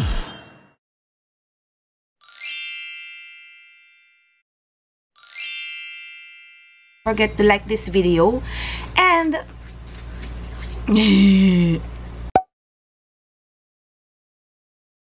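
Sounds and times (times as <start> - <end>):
bright chime sound effect: 2.2 - 4.4, 5.2 - 7.1.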